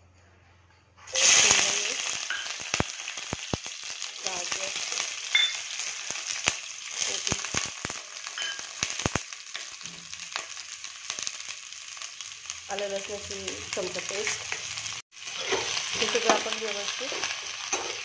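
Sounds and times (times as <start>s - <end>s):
vegetables sizzling in hot oil: 1.1s - 18.0s
crackling pops: 1.8s - 4.2s, 8.8s - 9.7s.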